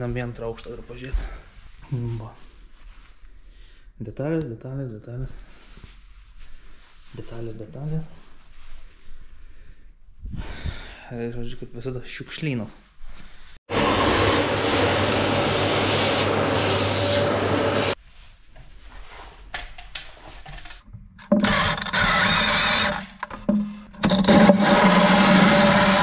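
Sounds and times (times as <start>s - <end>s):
small electric motor running: 21.4s - 23.1s
knocks and handling noises: 23.1s - 24.5s.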